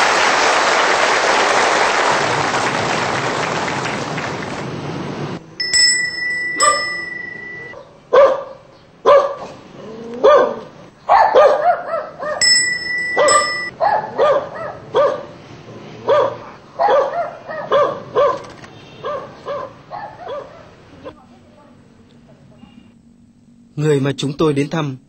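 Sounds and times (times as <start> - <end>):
steady high tone: 5.4 - 7.8, 12.4 - 13.8
dog barking: 6.6 - 6.8, 7.7 - 9.6, 10.2 - 12.4, 13.2 - 15.4, 16.0 - 20.8.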